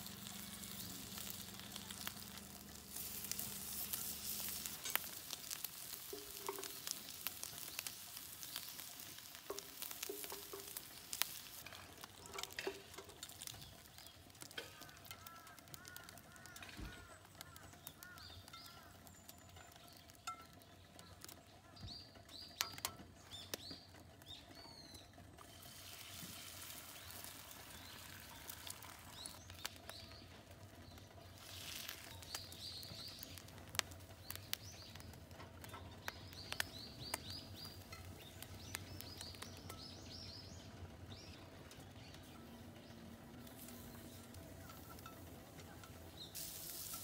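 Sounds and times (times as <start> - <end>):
food sizzling in a pan: 0.0 - 20.3, 25.4 - 35.1, 43.4 - 47.0
small birds chirping: 0.0 - 47.0.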